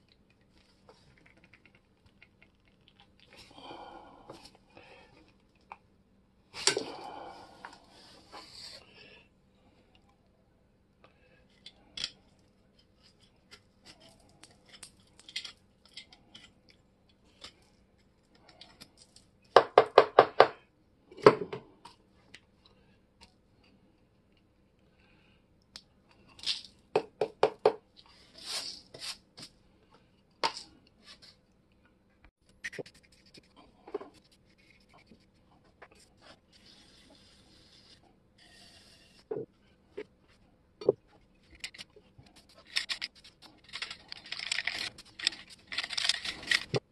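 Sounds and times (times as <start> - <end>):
metal clicks and scrapes: 41.4 - 46.9.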